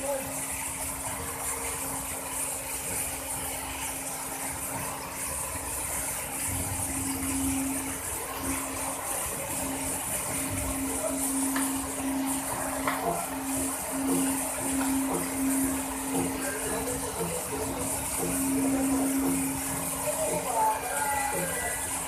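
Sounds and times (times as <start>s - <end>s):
machinery hum: 0.0s - 22.0s.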